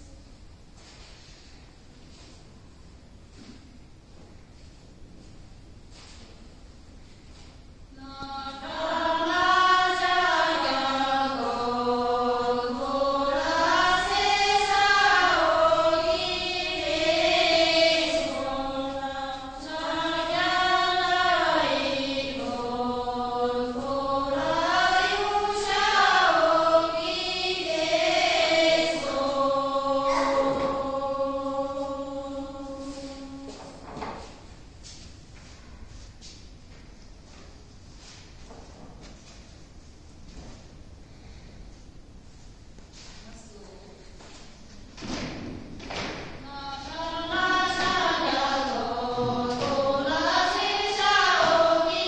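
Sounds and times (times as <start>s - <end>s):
women singing in unison: 7.9s - 33.8s, 46.4s - 52.0s.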